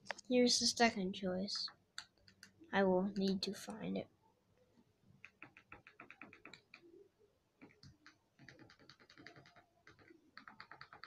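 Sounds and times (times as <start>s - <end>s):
faint typing clicks: 5.2s - 6.9s, 7.6s - 11.0s.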